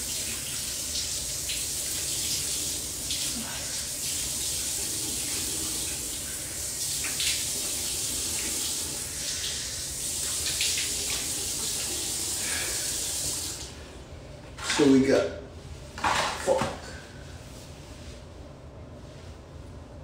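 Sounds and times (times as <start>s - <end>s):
sink tap running: 0.0s - 13.7s.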